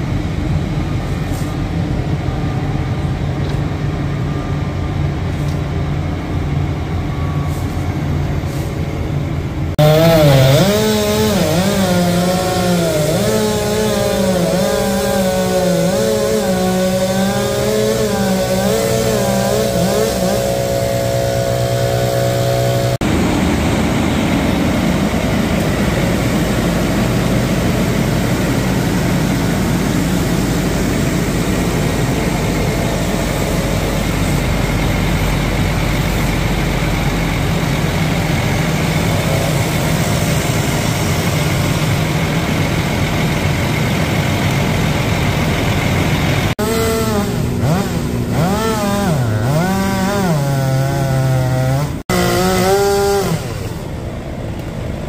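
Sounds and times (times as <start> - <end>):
heavy machinery engine drone: 0.0 - 55.0
chainsaw cutting wood: 9.8 - 23.1, 46.4 - 54.0.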